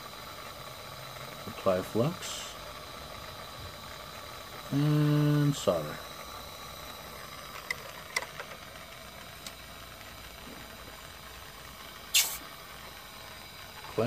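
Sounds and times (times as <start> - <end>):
soldering torch flame hissing: 0.0 - 14.0
sharp burst of hiss: 12.1 - 12.5.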